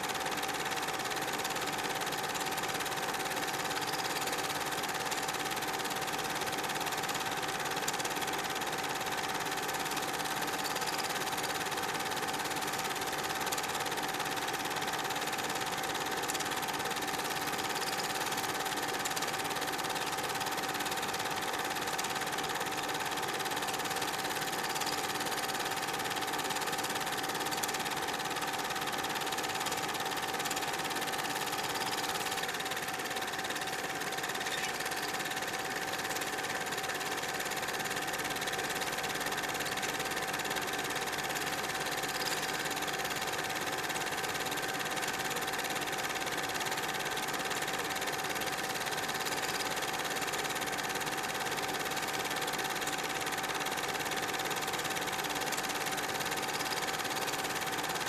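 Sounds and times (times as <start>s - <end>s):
film projector whirring: 0.0s - 58.0s.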